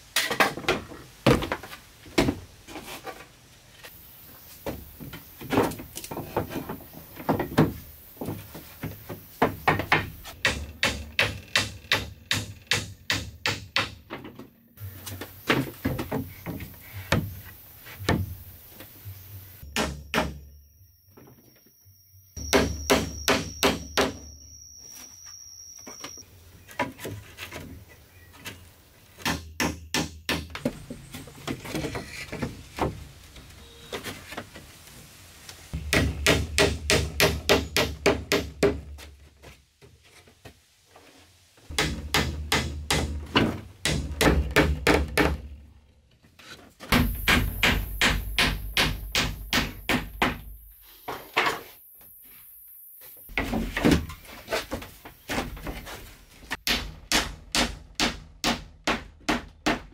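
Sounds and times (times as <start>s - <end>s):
hammer nailing wooden planks: 9.4s - 14.1s, 35.8s - 38.9s, 41.7s - 45.5s, 46.9s - 50.6s, 56.6s - 59.9s.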